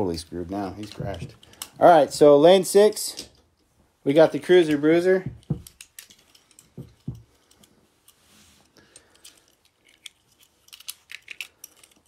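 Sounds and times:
soft knocks: 5.2 - 5.7.

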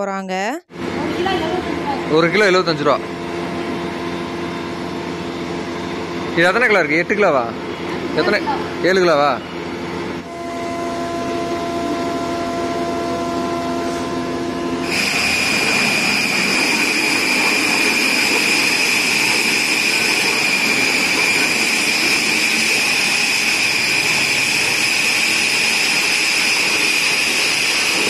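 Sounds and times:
high machine whine: 0.7 - 28.0
oil mill machine hum: 0.7 - 28.0
grinding noise: 10.2 - 28.0.

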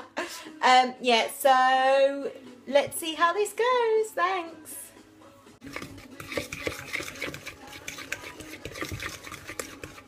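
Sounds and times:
scrapes and knocks against bowl: 5.6 - 10.0
utensil stirring batter in bowl: 5.6 - 10.0.

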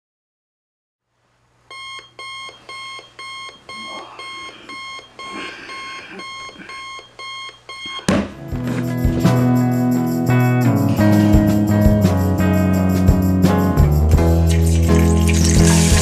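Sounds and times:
digital alarm clock beeping: 1.7 - 8.1
sudden thump: 8.1 - 9.6
loud music: 8.4 - 16.0.

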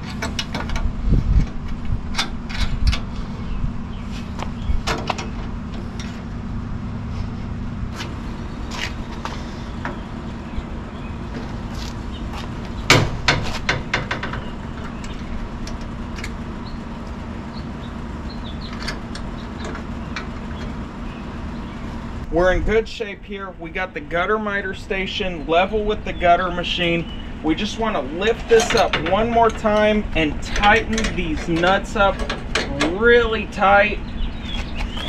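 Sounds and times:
metal clicks and knocks: 0.0 - 3.1, 12.7 - 16.4, 28.5 - 33.0
steady low hum: 0.0 - 35.0.

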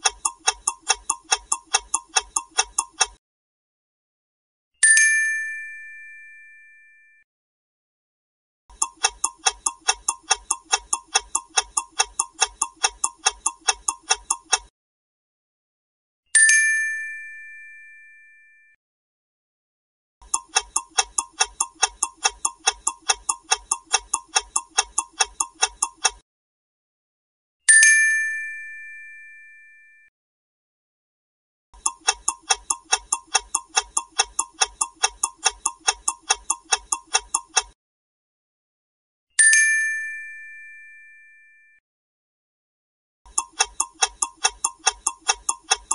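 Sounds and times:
clock-like ticking: 0.0 - 3.2, 8.7 - 14.7, 20.2 - 26.2, 31.8 - 37.8, 43.3 - 45.9
bell ding: 4.8 - 7.2, 16.4 - 18.7, 27.7 - 30.1, 39.4 - 41.8.

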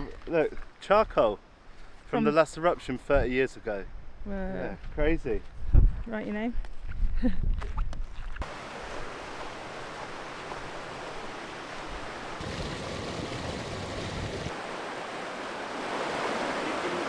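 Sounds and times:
river rushing over rocks: 8.4 - 17.0.

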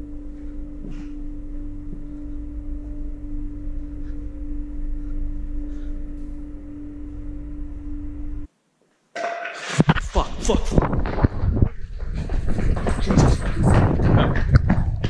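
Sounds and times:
eerie sustained drone: 0.0 - 8.5
low rumble: 0.0 - 8.5, 9.9 - 15.0.

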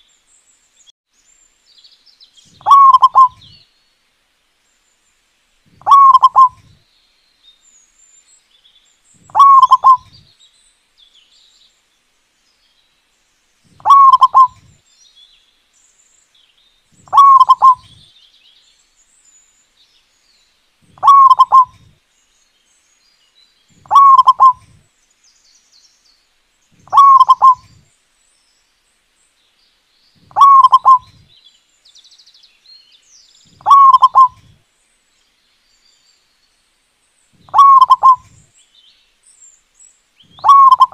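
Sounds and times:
faint high bird chirps: 1.7 - 3.8, 5.8 - 11.7, 13.7 - 19.6, 20.2 - 27.9, 30.0 - 34.6, 37.3 - 40.9
dove cooing: 2.6 - 3.5, 5.8 - 6.7, 9.3 - 10.2, 13.8 - 14.7, 17.1 - 18.0, 20.9 - 21.9, 23.8 - 24.8, 26.9 - 27.8, 30.3 - 31.2, 33.6 - 34.6, 37.5 - 38.4, 40.3 - 40.9.

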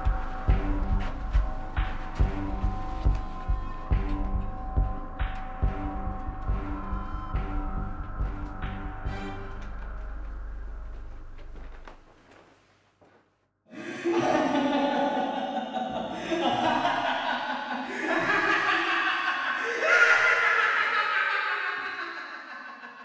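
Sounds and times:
low drone: 0.0 - 11.8
loud laughter: 13.7 - 23.0.

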